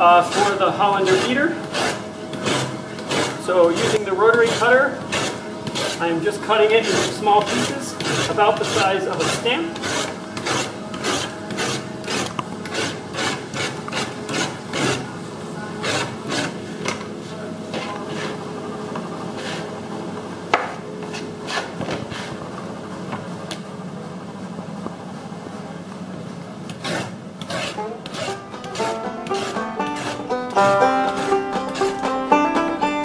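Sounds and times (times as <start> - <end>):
rotary cutter rasping through sacking: 0.1 - 6.1, 6.8 - 15.1, 26.7 - 30.2, 31.1 - 32.0.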